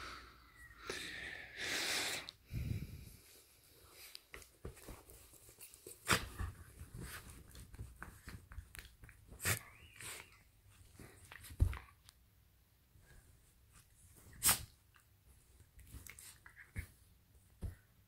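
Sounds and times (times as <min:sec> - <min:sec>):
bedcover rustling: 0:03.2 - 0:11.8.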